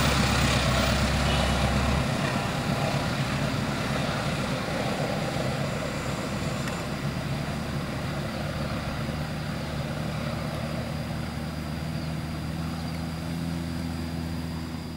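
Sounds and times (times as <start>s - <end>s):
drone propellers humming: 0.0s - 14.9s.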